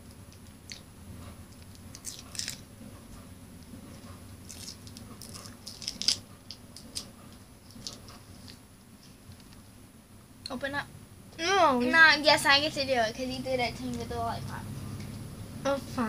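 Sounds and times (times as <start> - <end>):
candy wrapper crinkling: 1.6 - 2.6, 4.4 - 7.1.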